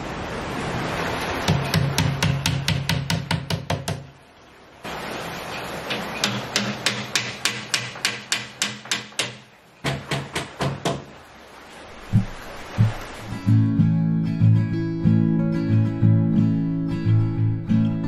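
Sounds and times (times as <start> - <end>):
low sustained bass notes: 12.2 - 18.0.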